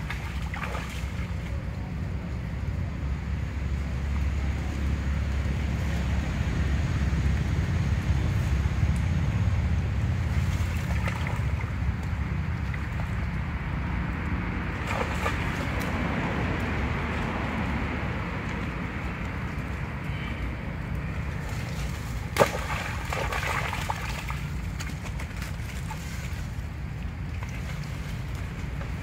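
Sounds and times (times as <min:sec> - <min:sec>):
monkeys splashing in water: 0:00.0 - 0:01.5, 0:09.9 - 0:13.5, 0:14.6 - 0:17.2, 0:21.0 - 0:29.0
wind rumble on microphone: 0:00.0 - 0:29.0.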